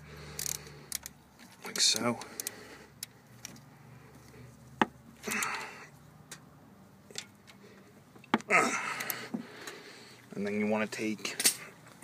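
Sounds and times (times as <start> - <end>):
ratchet metal clicks and knocks: 0.3 - 3.6.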